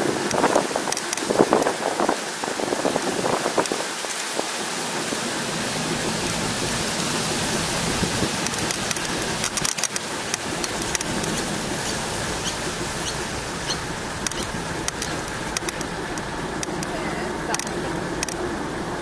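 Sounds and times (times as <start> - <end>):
wind on microphone: 0.0 - 9.6
small clicks and rattles: 0.3 - 1.7, 8.4 - 12.0, 13.7 - 18.5
bicycle tyre noise: 5.8 - 16.8.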